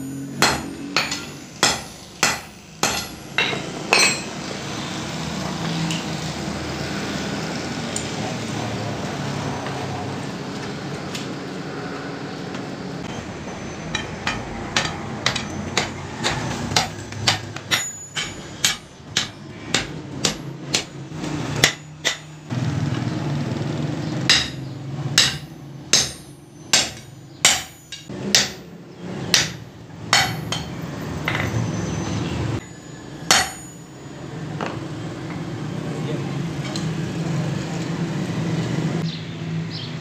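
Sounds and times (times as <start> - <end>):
hammer striking hot iron: 0.3 - 4.4, 13.0 - 22.5, 24.3 - 31.5, 32.6 - 33.9.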